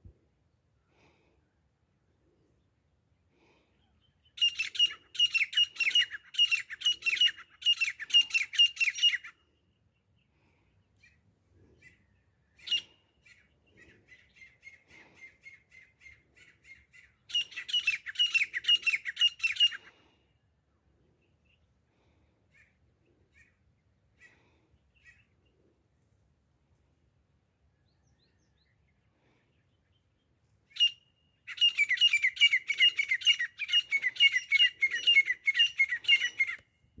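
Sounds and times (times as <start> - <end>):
francolin calling: 3.8 - 9.4, 11.8 - 20.0, 30.7 - 36.6.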